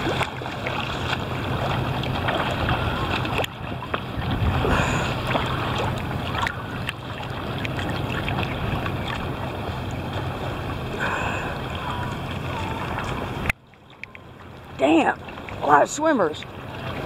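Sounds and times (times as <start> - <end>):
wind on microphone: 0.0 - 13.5
sea water sloshing and splashing: 0.0 - 17.0
swimmer splashing strokes: 0.0 - 17.0.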